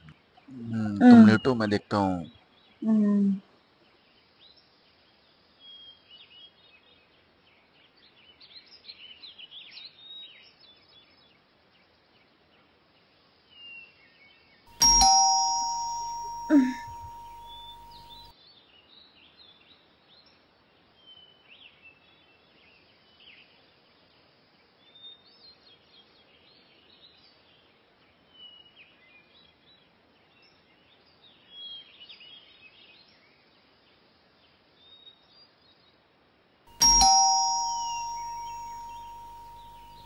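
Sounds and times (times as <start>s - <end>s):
electronic doorbell chime: 14.7s - 18.3s, 36.7s - 40.0s.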